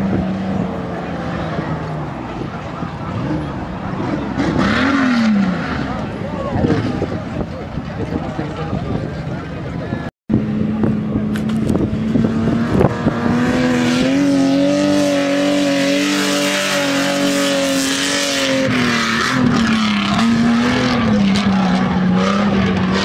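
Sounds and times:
engine at high revs: 0.0s - 7.5s, 10.4s - 23.0s.

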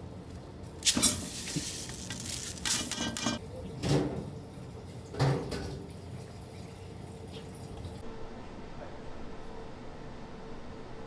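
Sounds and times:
pots and utensils clinking: 0.9s - 3.4s.

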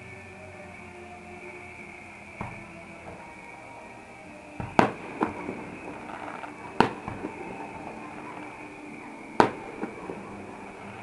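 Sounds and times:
small firework pops: 2.4s - 3.3s, 4.6s - 8.8s, 9.4s - 11.0s
distant firework shells bursting: 2.4s - 3.4s, 4.6s - 11.0s.

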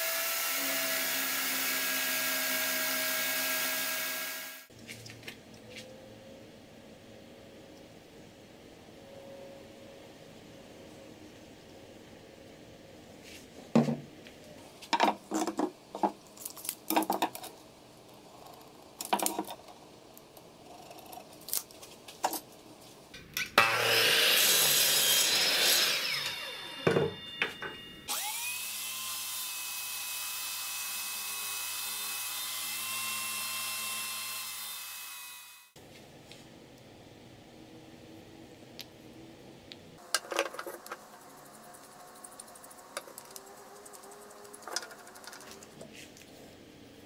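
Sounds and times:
electric drill running: 0.0s - 4.7s, 23.8s - 27.3s, 28.1s - 35.8s
miter saw cutting wood: 0.0s - 4.7s, 23.6s - 27.3s, 28.1s - 35.8s.

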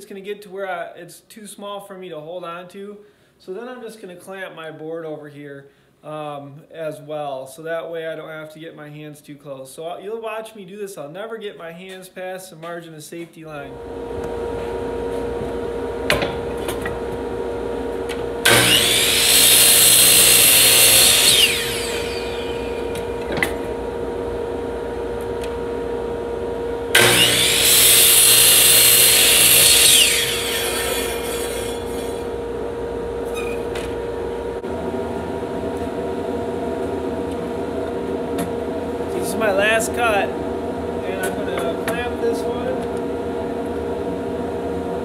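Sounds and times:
steady hum: 13.6s - 45.0s
miter saw cutting wood: 18.1s - 23.8s, 26.9s - 32.6s
saw blade winding down whine: 18.1s - 24.0s, 26.9s - 36.2s.

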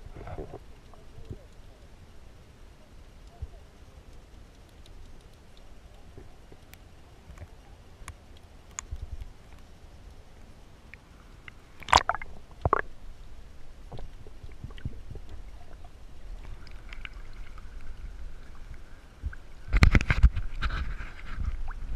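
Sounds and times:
water splashing and sloshing: 0.0s - 21.9s
low underwater rumble: 11.4s - 21.9s.

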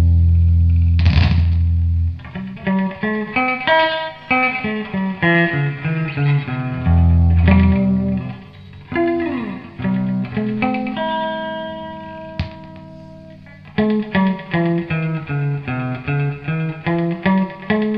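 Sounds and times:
electric guitar notes with echo: 1.0s - 17.9s.

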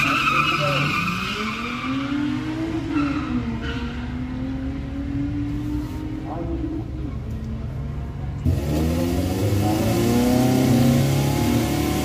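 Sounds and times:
tyre squeal: 0.0s - 2.3s
engine revving hard: 8.4s - 12.0s.

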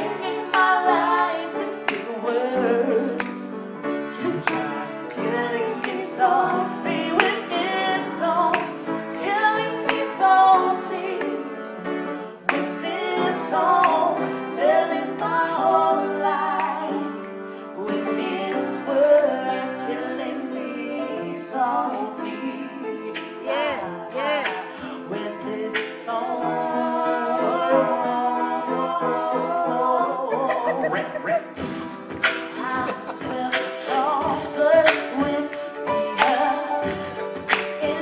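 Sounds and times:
grand piano accompaniment: 0.0s - 38.0s
man singing: 4.2s - 6.0s, 27.7s - 38.0s
woman singing with vibrato: 32.5s - 37.0s.

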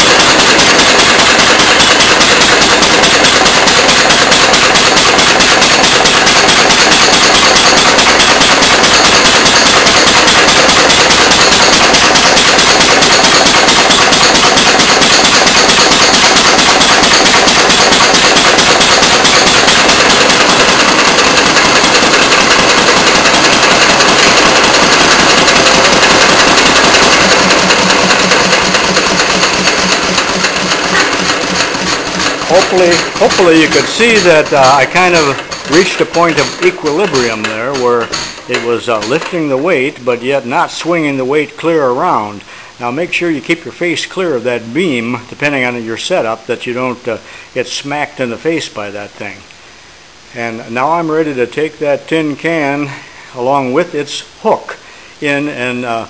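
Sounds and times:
single-cylinder engine knocking: 0.0s - 39.4s.

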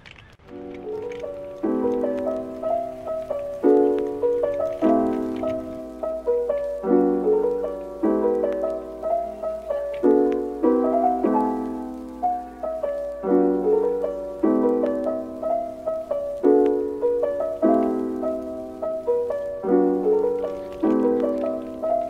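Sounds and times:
piano chords: 0.4s - 22.0s.

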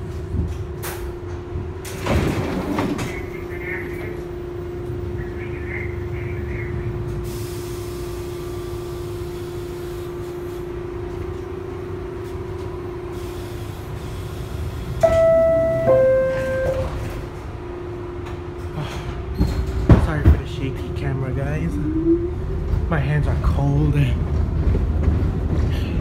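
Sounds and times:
subway car rumble and hum: 0.0s - 26.0s
two-note descending chime: 15.0s - 17.2s.

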